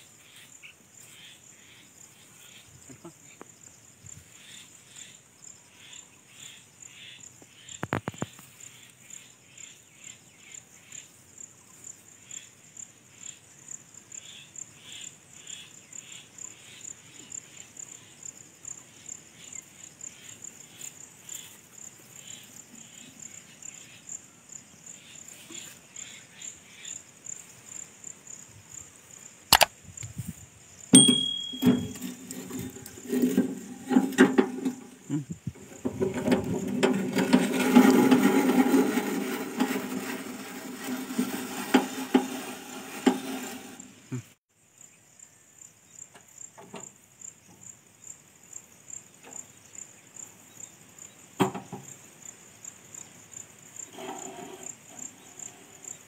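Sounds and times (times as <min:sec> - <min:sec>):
insects chirping: 0:00.0 - 0:37.5, 0:43.3 - 0:56.0
sharp click: 0:29.5 - 0:29.7
metal pipe clanking: 0:31.0 - 0:35.0.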